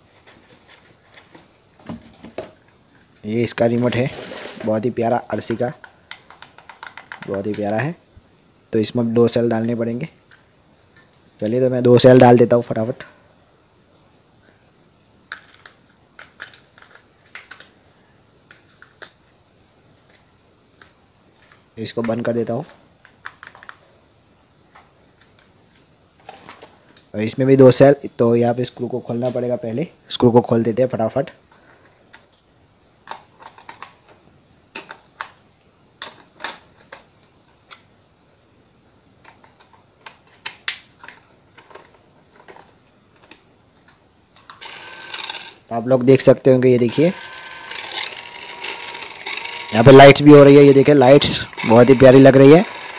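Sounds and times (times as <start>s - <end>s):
plastic clicks and clacks: 5.8s - 7.6s, 15.3s - 17.7s, 33.0s - 34.1s.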